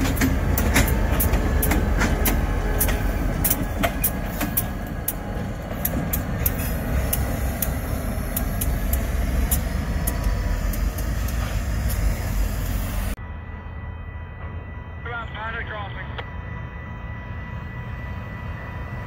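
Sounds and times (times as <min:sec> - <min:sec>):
wheels clicking on rails: 0:00.0 - 0:13.1
freight train rumble: 0:00.0 - 0:19.0.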